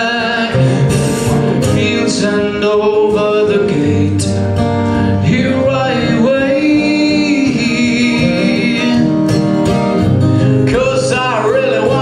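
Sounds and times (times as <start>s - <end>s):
acoustic guitar: 0.0s - 12.0s
man singing folk song: 0.0s - 12.0s.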